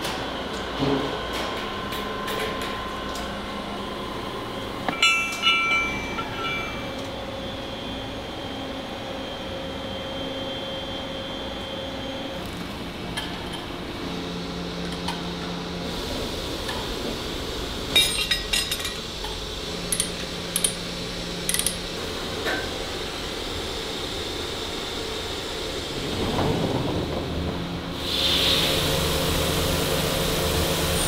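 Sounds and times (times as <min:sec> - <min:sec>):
low machine tone: 0:02.8 - 0:31.0
metal-cutting machinery humming: 0:03.4 - 0:31.0
sharp metal clinks: 0:04.9 - 0:07.1.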